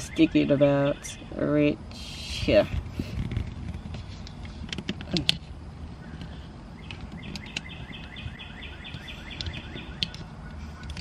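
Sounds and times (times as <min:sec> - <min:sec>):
bird chirping: 0:00.0 - 0:02.6, 0:05.9 - 0:11.0.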